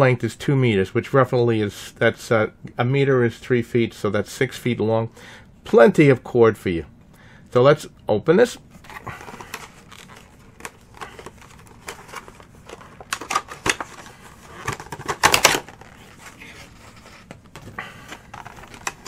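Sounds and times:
plastic packaging clicks and crinkles: 0:08.9 - 0:19.0.

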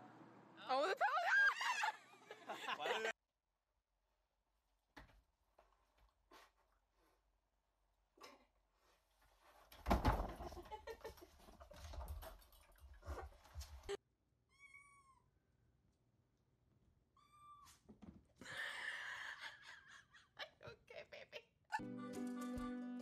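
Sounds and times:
rustling and thumps: 0:09.2 - 0:14.0.

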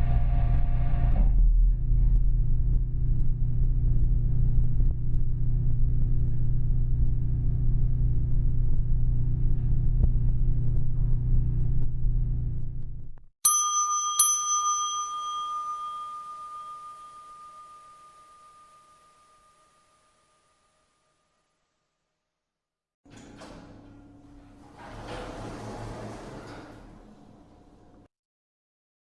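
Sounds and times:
elevator low rumble: 0:00.0 - 0:13.2, 0:23.1 - 0:28.1
elevator arrival chime: 0:13.5 - 0:20.0.

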